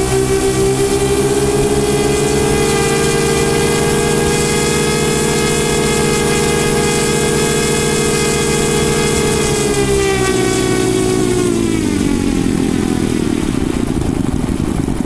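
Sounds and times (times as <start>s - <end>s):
model aircraft engines running: 0.0s - 15.0s.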